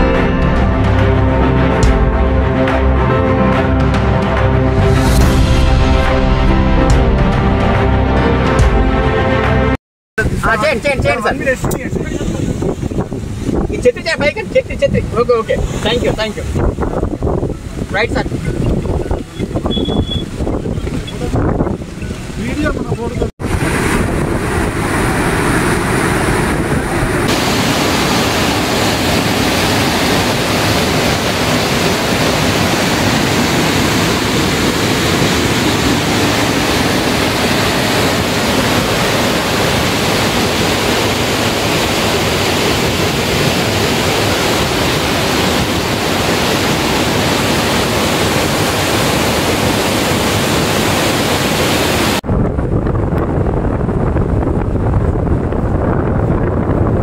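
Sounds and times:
water rushing through spillway: 10.2s - 52.2s.

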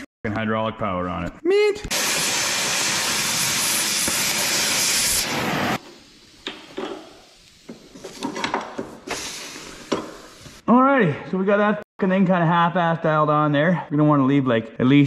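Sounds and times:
cutting torch hissing: 1.9s - 10.6s.

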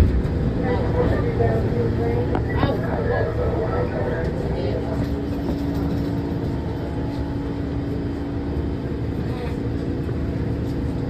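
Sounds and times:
subway train rumbling on track: 0.0s - 11.0s.

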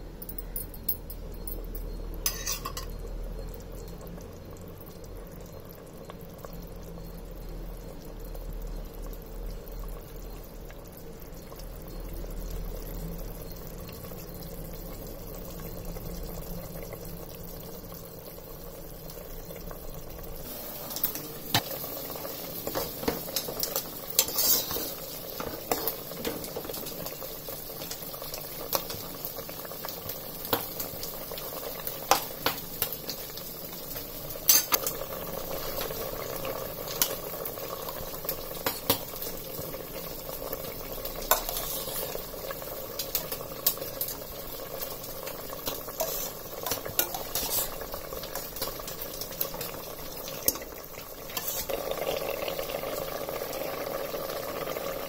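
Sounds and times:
gravy boiling in a pot: 0.8s - 55.0s.

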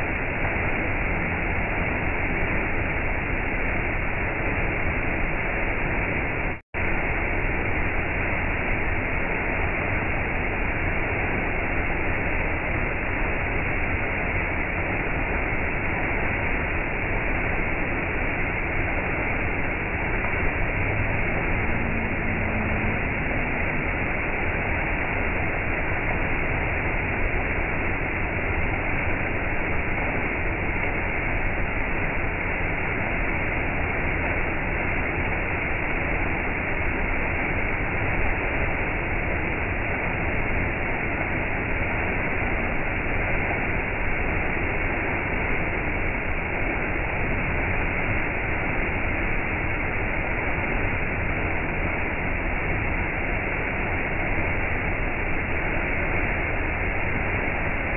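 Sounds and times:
waterfall rushing into pool: 0.0s - 57.9s.

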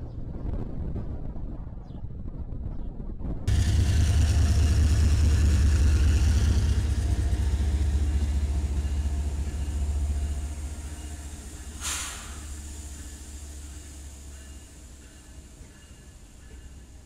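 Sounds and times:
diesel locomotive engine rumble: 3.5s - 17.0s.

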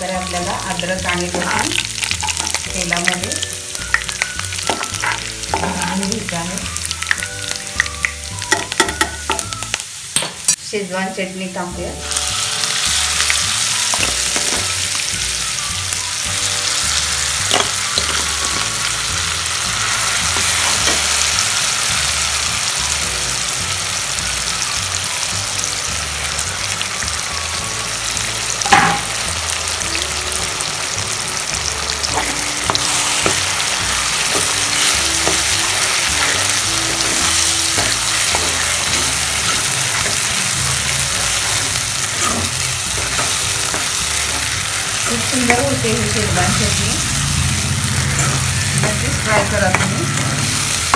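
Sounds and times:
chilli paste sizzling in oil: 0.0s - 50.9s
spoon knocking on pan: 8.5s - 9.5s, 28.6s - 29.2s
spoon scraping a pan: 34.2s - 45.7s.

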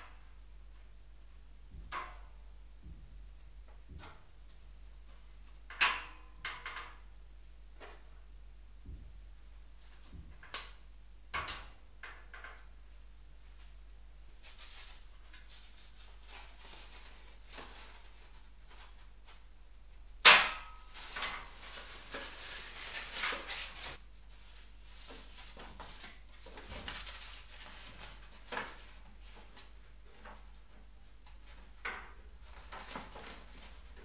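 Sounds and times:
cardboard rustling and scraping: 21.0s - 30.5s.

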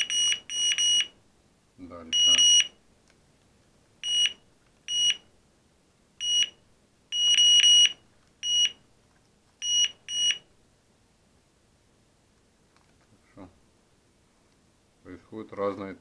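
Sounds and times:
high-pitched alarm beeps: 0.0s - 1.2s, 2.1s - 2.8s, 4.0s - 5.2s, 6.2s - 8.8s, 9.6s - 10.4s.

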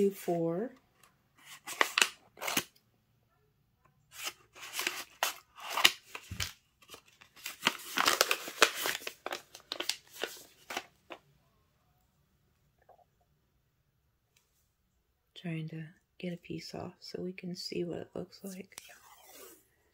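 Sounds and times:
paper rustling and crinkling: 1.4s - 2.7s, 4.1s - 11.2s.

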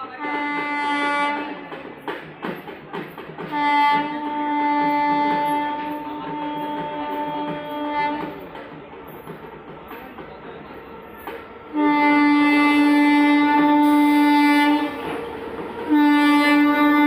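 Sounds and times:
locomotive horn blasts: 0.2s - 1.6s, 3.5s - 8.4s, 11.7s - 15.0s, 15.9s - 17.0s.

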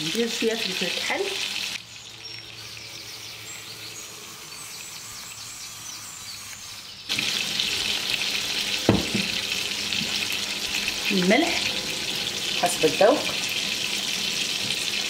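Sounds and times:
tomato slices sizzling in a pan: 0.0s - 3.1s, 7.0s - 15.0s
sharp knock: 8.9s - 9.3s.

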